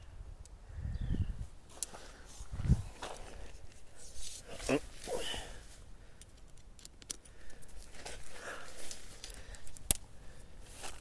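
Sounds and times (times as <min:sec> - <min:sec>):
tent clips snapping onto poles: 0:06.2 - 0:07.8, 0:08.9 - 0:10.1.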